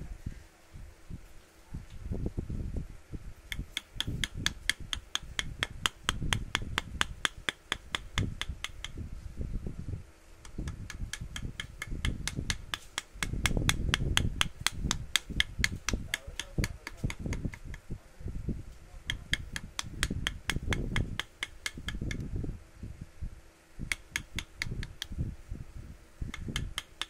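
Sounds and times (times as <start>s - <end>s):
hammer tapping chisel into wood: 3.5s - 9.0s, 10.6s - 17.8s, 19.1s - 22.2s, 23.9s - 25.1s, 26.3s - 27.0s
dull low knocks and rumble: 3.6s - 26.9s.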